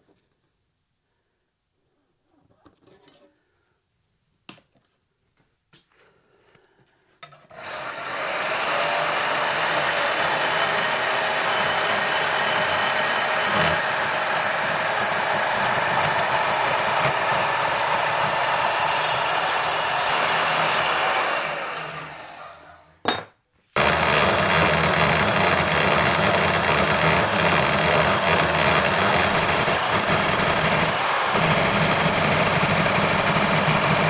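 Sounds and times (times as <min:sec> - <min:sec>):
power saw cutting steel: 0:07.5 - 0:22.9, 0:23.8 - 0:34.0.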